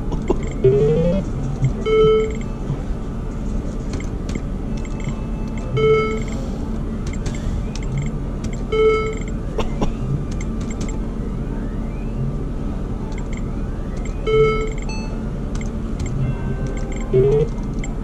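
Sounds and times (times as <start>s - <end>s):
casino background hum: 0.0s - 18.0s
quick electronic ticks: 0.1s - 1.0s, 13.1s - 14.9s, 15.5s - 18.0s
electronic chime tones: 1.7s - 2.6s, 4.8s - 6.4s, 16.1s - 18.0s.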